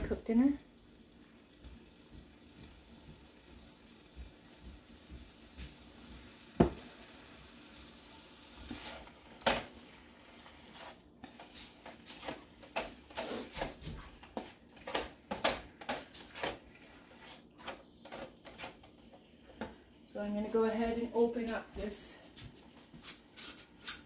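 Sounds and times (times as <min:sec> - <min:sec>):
utensils clicking against pan: 0:10.8 - 0:16.7, 0:23.0 - 0:24.0.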